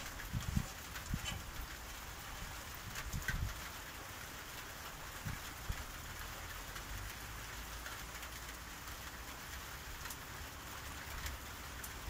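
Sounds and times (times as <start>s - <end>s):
steady rain: 0.0s - 12.0s.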